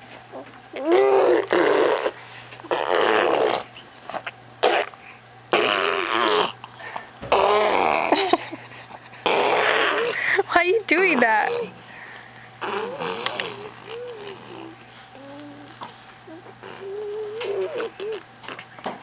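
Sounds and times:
baby blowing raspberries: 0:00.8 - 0:06.6, 0:07.3 - 0:08.1, 0:09.2 - 0:10.2, 0:12.6 - 0:18.6.

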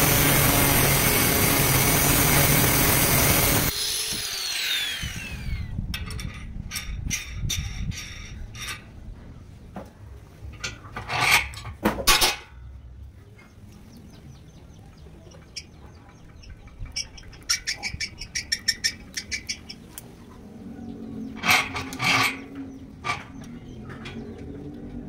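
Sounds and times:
loud metal scrapes: 0:21.2 - 0:23.4.

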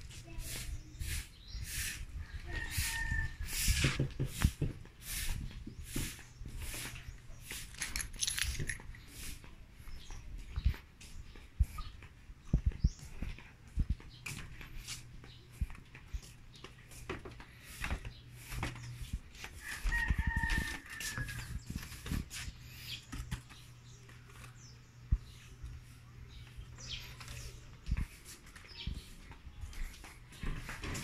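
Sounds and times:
steps on wooden deck boards: 0:01.6 - 0:31.0
rooster crowing: 0:19.6 - 0:21.5.

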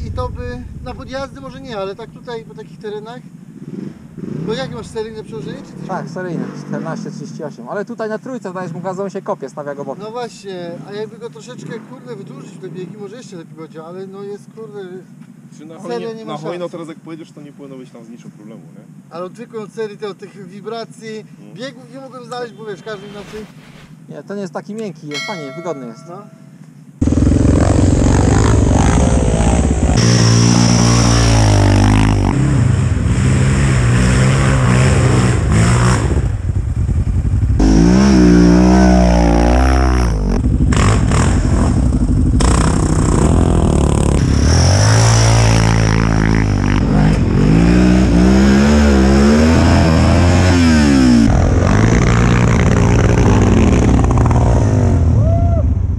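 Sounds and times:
quad engines revving: 0:03.6 - 0:07.1, 0:27.0 - 0:55.2.

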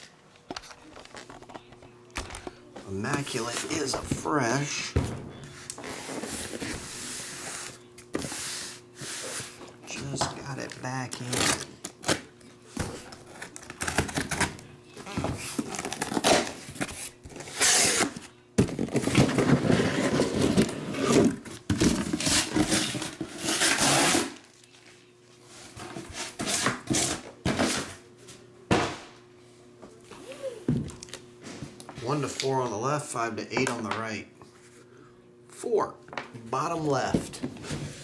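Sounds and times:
cardboard scraping and rustling: 0:15.0 - 0:24.4.

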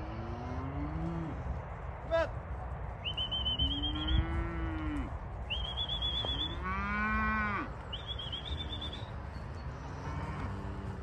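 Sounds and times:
cattle mooing: 0:00.0 - 0:01.4, 0:03.6 - 0:05.2, 0:06.1 - 0:08.7, 0:09.5 - 0:11.0
high wavering whistle-like tone: 0:05.5 - 0:06.6, 0:07.9 - 0:09.2.

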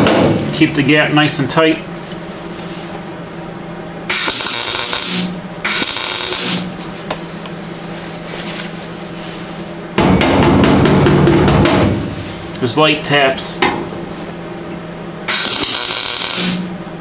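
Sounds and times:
loud steady noise: 0:04.0 - 0:06.8, 0:15.2 - 0:17.0
welding arc crackling: 0:04.1 - 0:06.8, 0:15.3 - 0:16.9.

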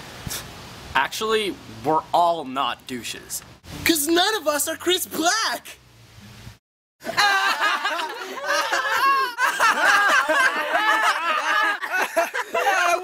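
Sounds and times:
boys laughing: 0:07.0 - 0:13.0.

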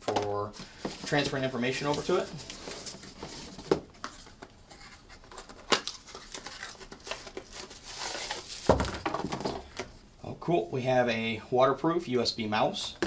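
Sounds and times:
cardboard rustling and crinkling: 0:00.1 - 0:09.9.

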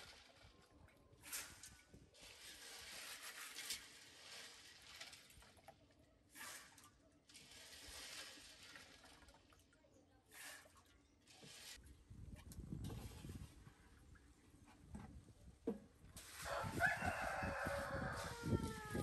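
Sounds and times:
water splashing in a basin: 0:02.3 - 0:11.8.

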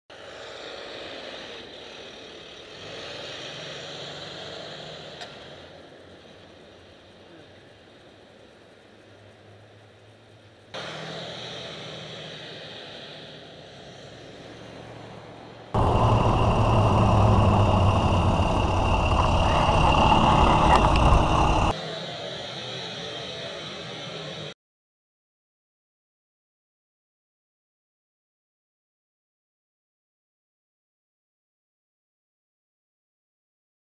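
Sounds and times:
road hiss: 0:00.1 - 0:24.4
diesel truck engine hum: 0:15.8 - 0:21.7
wind noise: 0:15.8 - 0:21.7.

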